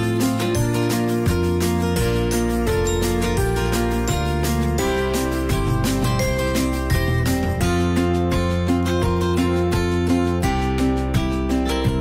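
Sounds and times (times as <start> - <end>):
instrumental music with bass line: 0.0 - 12.0.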